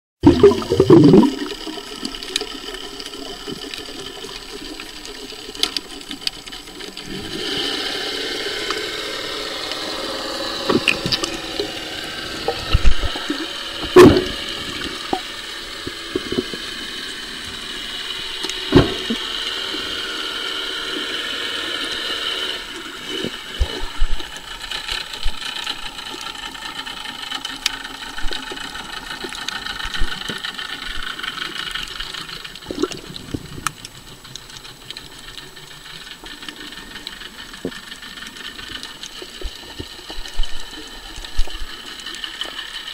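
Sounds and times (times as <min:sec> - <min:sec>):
underwater rush of water: 0:00.2 - 0:42.9
sharp underwater knocks: 0:12.6 - 0:14.5, 0:18.7 - 0:19.2
small clicks: 0:23.2 - 0:42.9.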